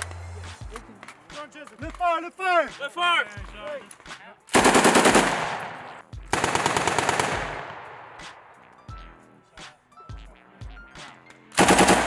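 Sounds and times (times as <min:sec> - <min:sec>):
machine gun bursts: 0:04.5 - 0:05.4, 0:06.3 - 0:07.5, 0:11.6 - 0:12.0.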